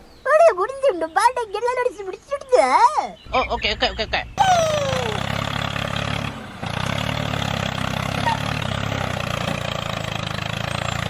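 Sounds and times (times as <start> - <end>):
tractor engine running: 3.2 - 11.0.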